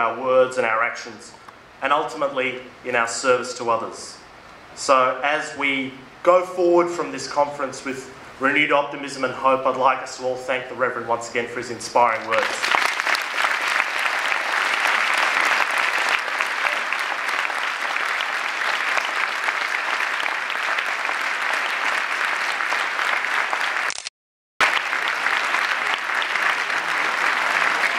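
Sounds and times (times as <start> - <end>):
audience applauding: 12.1 - 23.9, 24.6 - 27.9.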